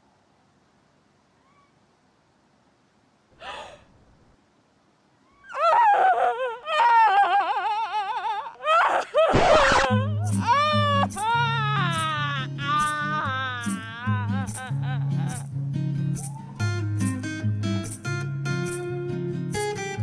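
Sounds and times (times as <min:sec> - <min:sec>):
woman gasping: 0:03.4 - 0:03.9
woman wailing in shock: 0:05.3 - 0:15.4
music: 0:09.9 - 0:20.0.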